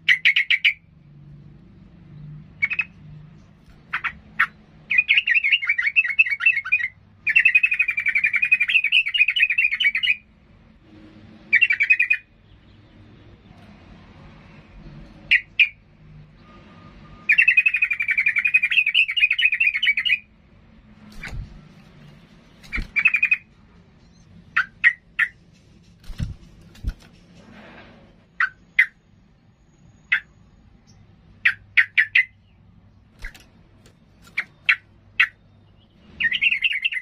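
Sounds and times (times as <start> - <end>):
sharp bird chirps: 0.0 - 0.9, 2.6 - 10.3, 11.5 - 13.0, 16.4 - 20.3, 21.0 - 25.4, 28.3 - 37.0
bird warbling song: 2.6 - 10.3, 11.5 - 13.6, 17.2 - 20.3, 21.0 - 27.2, 29.6 - 37.0.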